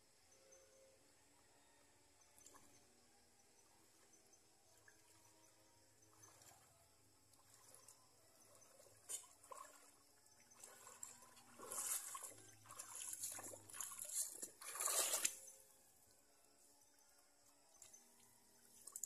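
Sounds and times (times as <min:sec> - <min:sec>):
water splashing and trickling: 0:03.5 - 0:16.0, 0:17.4 - 0:19.0.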